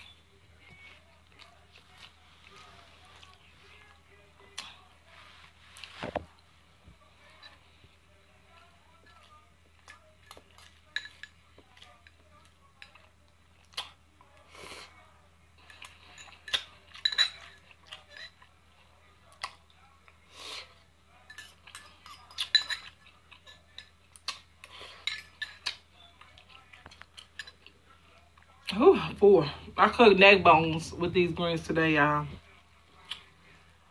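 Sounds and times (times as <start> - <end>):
chewing: 0.6 - 4.9, 8.4 - 15.0, 15.6 - 28.7, 32.9 - 33.6
fork clinking against bowl: 15.7 - 18.4, 21.2 - 24.0, 24.9 - 25.8.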